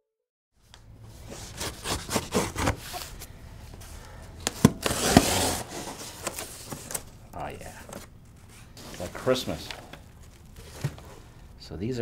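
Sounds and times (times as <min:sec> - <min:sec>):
blade cutting packing tape: 0:01.4 - 0:03.0, 0:04.8 - 0:05.7.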